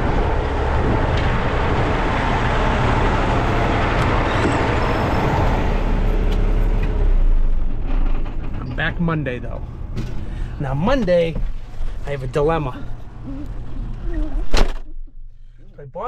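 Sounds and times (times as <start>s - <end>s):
loud rushing noise: 0.0s - 7.3s
diesel truck engine running: 0.0s - 14.3s.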